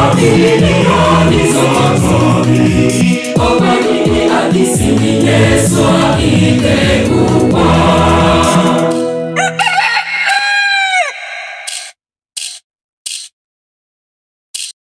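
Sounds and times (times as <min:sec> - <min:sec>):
choir singing: 0:00.0 - 0:09.6
rooster crowing: 0:09.4 - 0:11.9.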